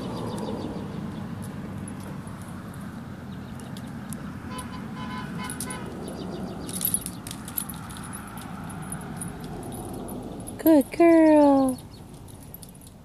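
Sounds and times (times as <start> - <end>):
low outdoor rumble: 0.0 - 13.0
collar tags jingling: 1.4 - 13.0.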